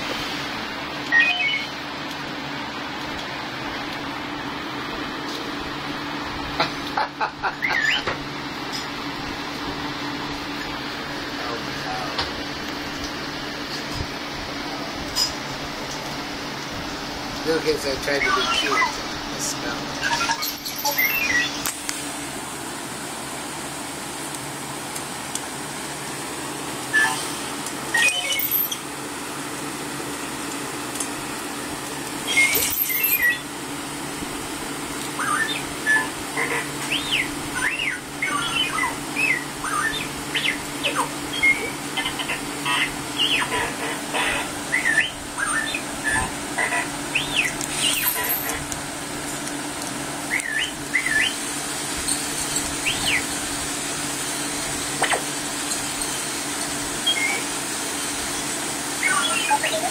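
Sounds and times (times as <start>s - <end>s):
electric fan hum: 0.0s - 59.9s
toy robot electronic beeps: 1.1s - 1.7s, 7.6s - 8.1s, 18.1s - 19.0s, 20.0s - 21.6s, 26.9s - 27.3s, 27.9s - 28.8s, 32.3s - 33.4s, 35.2s - 48.6s, 57.0s - 57.5s, 59.0s - 59.9s.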